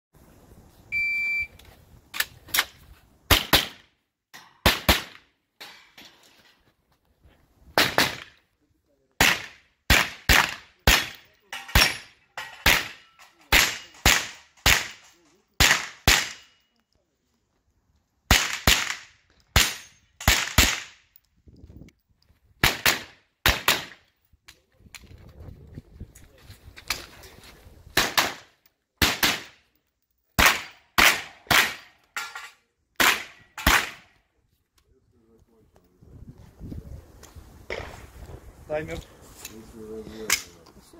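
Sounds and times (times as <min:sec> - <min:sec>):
shot timer beep: 0:00.9 - 0:01.5
rifle gunshots: 0:09.2 - 0:12.0, 0:15.6 - 0:16.5, 0:22.6 - 0:24.0, 0:28.0 - 0:29.6, 0:30.4 - 0:31.9.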